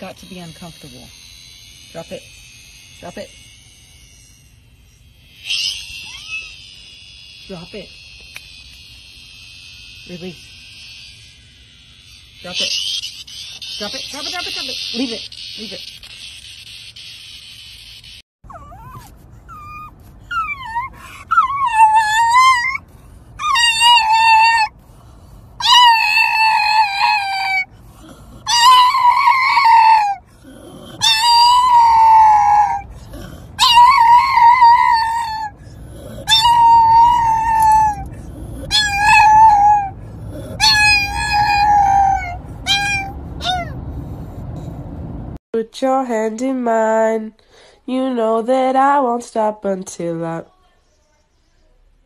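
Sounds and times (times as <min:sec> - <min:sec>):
dog howling and yelping: 0:05.3 - 0:07.7, 0:18.5 - 0:24.8, 0:25.6 - 0:44.6
car rumble: 0:35.5 - 0:45.4.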